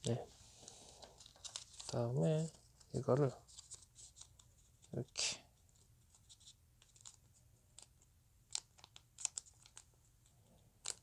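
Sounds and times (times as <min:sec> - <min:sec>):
paper crinkling: 0:00.7 - 0:05.0, 0:08.5 - 0:09.9.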